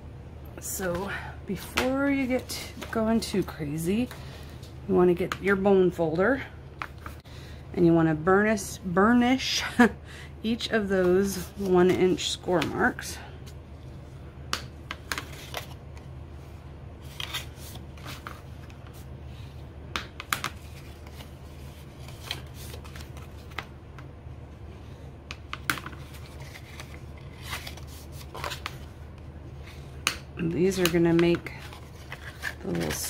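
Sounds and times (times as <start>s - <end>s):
card rustling: 17.0s - 19.1s, 20.3s - 23.7s, 25.3s - 29.0s, 30.6s - 33.0s.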